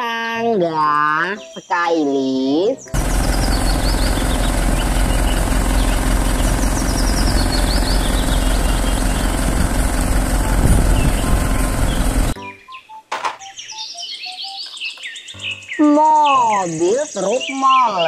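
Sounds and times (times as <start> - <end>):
birds chirping: 0.0 - 18.0
truck engine idling: 2.9 - 12.4
wind rumble on microphone: 10.4 - 12.3.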